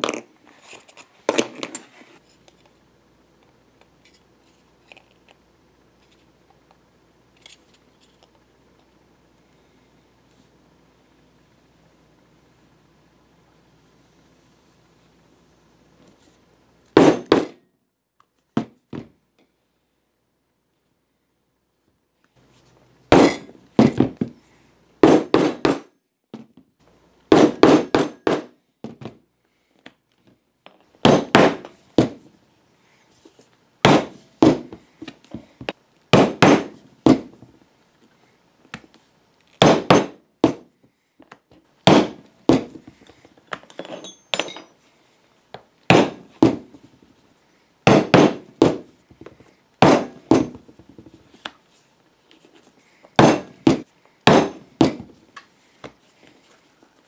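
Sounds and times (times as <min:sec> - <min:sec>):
maul knocking on stamping tool: 0:47.9 - 0:48.8, 0:53.2 - 0:55.1.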